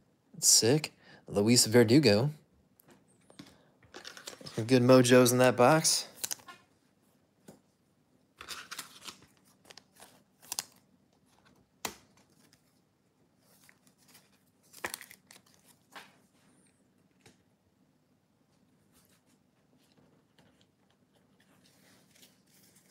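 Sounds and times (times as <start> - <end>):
plastic packaging rustling: 8.4 - 11.6, 13.4 - 16.2.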